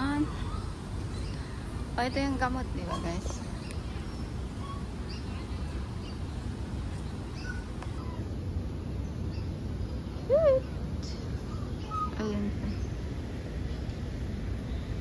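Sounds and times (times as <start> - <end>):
low background rumble: 0.0 - 15.0
faint bird chirps: 7.0 - 8.3, 9.0 - 13.0.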